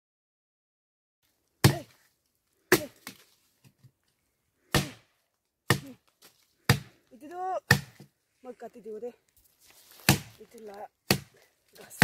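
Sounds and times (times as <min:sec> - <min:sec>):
machete chopping tree trunk: 0:01.6 - 0:02.0, 0:02.7 - 0:03.2, 0:04.7 - 0:07.0, 0:07.6 - 0:08.1, 0:10.0 - 0:10.4, 0:11.0 - 0:11.4.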